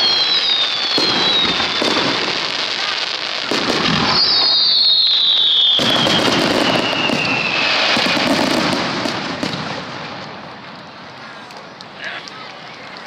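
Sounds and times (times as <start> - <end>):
falling firework whistle: 0.0 - 9.7
firework crackle: 0.0 - 13.0.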